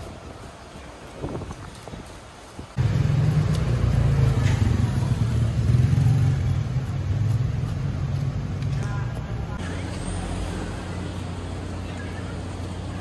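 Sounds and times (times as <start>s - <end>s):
vehicle engine running: 2.8s - 13.0s.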